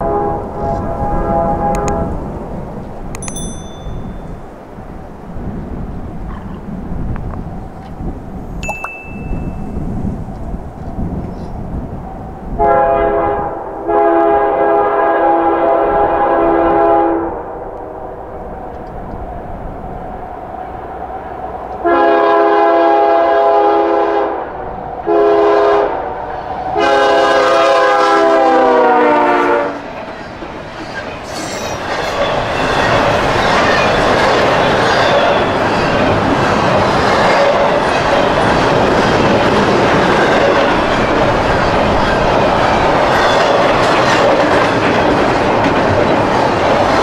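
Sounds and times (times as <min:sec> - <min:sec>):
locomotive air horn blasts: 0:00.0 - 0:02.2, 0:12.6 - 0:17.6, 0:21.8 - 0:24.4, 0:25.1 - 0:26.0, 0:26.8 - 0:29.9
train rumbling: 0:00.0 - 0:47.0.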